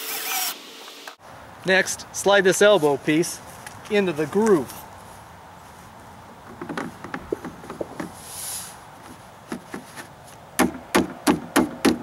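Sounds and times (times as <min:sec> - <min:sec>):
regular tapping knocks: 0:06.4 - 0:08.2
post arm clicking and knocking: 0:06.5 - 0:08.2.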